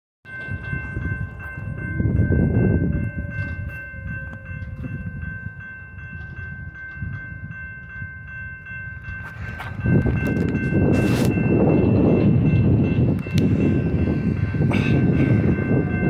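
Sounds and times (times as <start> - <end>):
crossing warning bell ringing: 0.3 - 16.0.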